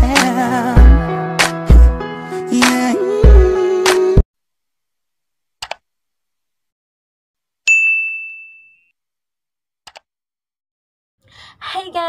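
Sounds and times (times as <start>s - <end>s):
high bell-like ding: 7.7s - 8.9s.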